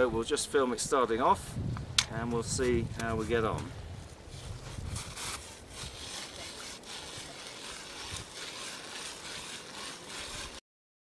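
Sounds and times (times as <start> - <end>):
ice auger scraping into ice: 4.3 - 10.6.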